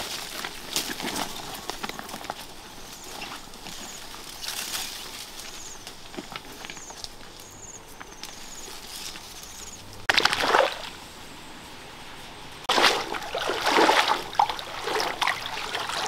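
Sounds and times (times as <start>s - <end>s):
footsteps on loose stones: 0.0s - 10.9s
rustling through tall grass: 0.0s - 16.0s
loud water splash: 10.1s - 11.0s, 12.7s - 16.0s.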